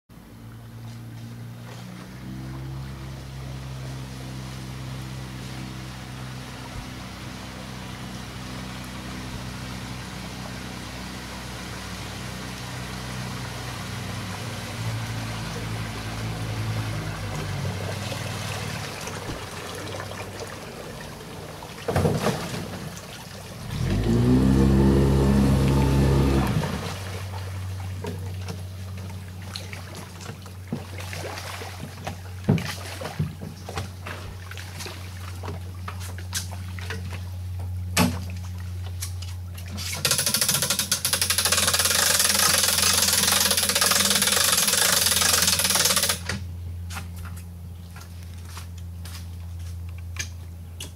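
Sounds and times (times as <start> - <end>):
outboard motor running: 0.2 - 50.9.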